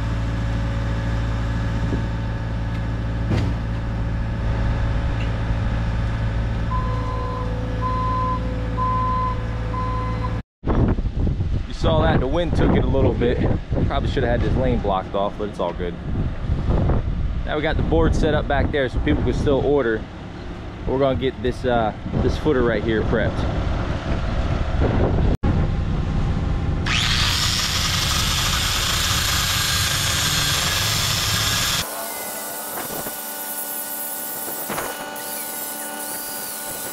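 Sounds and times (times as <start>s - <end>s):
diesel engine running: 0.0s - 10.4s, 13.2s - 36.9s
backup alarm beeping: 6.7s - 10.4s
low rumble: 21.9s - 29.0s
angle grinder cutting steel bolt: 26.8s - 36.9s.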